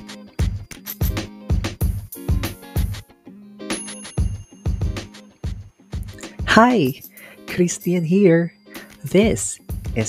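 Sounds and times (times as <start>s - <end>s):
music with a steady beat: 0.0s - 7.9s, 8.7s - 10.0s
bright bell-like ring: 3.7s - 9.9s.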